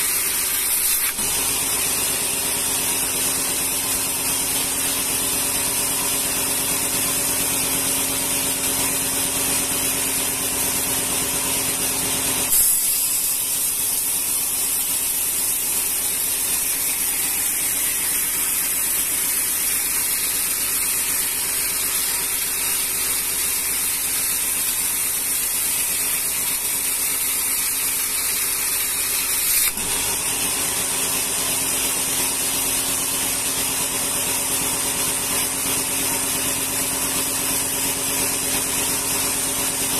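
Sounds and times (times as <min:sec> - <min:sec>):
band saw blade hissing: 0:00.0 - 0:03.8, 0:12.5 - 0:30.1.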